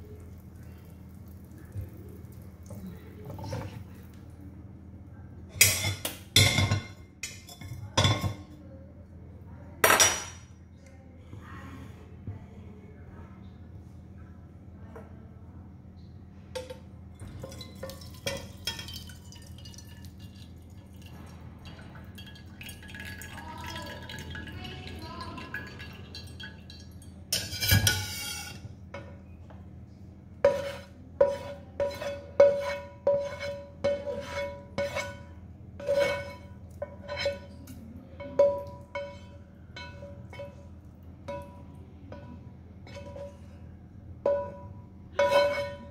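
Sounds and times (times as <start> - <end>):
metal pans clinking: 5.5 - 8.5, 16.6 - 29.2, 30.4 - 43.5, 44.2 - 45.9.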